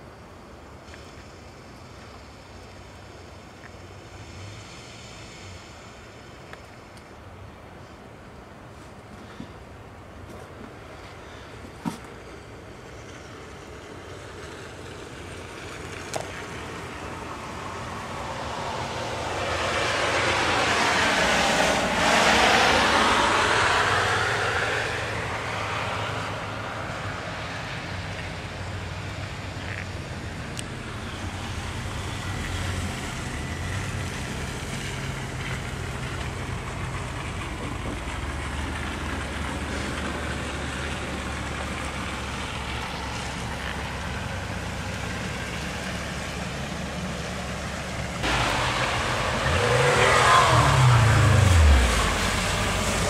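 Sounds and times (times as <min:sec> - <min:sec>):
low engine hum: 0:00.0 - 0:53.0
vehicle passing on snow: 0:07.9 - 0:53.0
engine revving for grip: 0:48.2 - 0:53.0.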